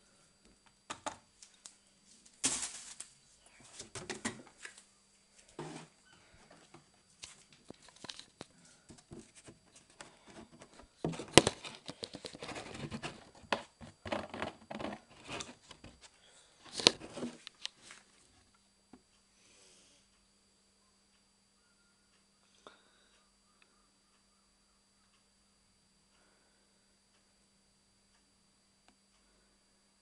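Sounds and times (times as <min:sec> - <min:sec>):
plastic laundry items rustling: 0:02.3 - 0:04.8, 0:09.2 - 0:16.0.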